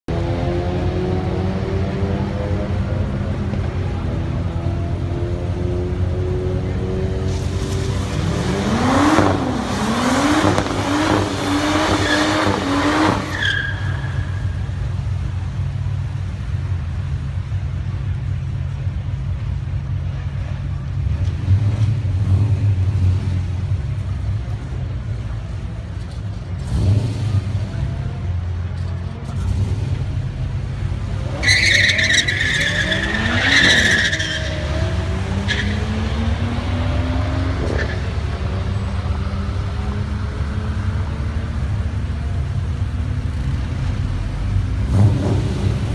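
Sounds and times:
car engine revving: 0.1 - 15.8, 26.5 - 45.9
tyres skidding: 0.7 - 45.9
high tyre squeal: 9.2 - 14.8, 31.2 - 36.4, 37.5 - 39.0.

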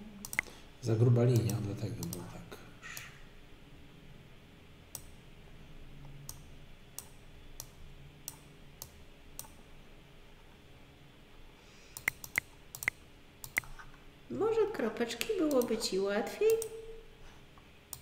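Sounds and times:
computer mouse clicking: 0.2 - 0.5, 1.4 - 2.3, 2.9 - 3.1, 4.9 - 5.2, 6.2 - 9.6, 11.9 - 13.8, 15.5 - 15.8.

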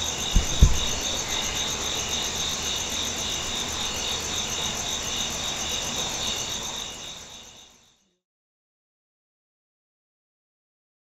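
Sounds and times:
crickets chirping: 0.0 - 8.2.

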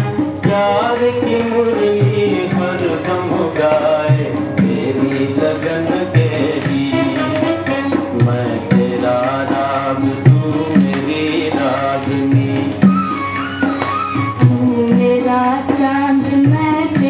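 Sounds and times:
wavering melodic lead: 12.2 - 15.5.

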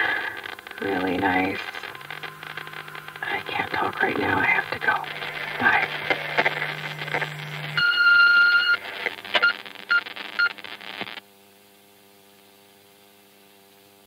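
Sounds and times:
crackling clicks: 0.0 - 11.2
faint electrical hum: 0.0 - 14.0
electronic beeper beeping: 0.6 - 10.5.

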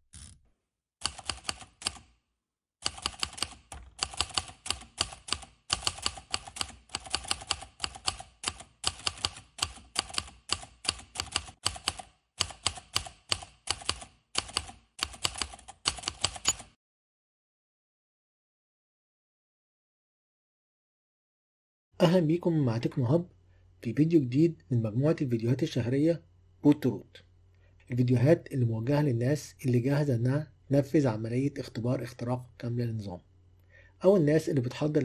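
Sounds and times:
computer keyboard typing: 1.0 - 2.1, 2.8 - 16.8.

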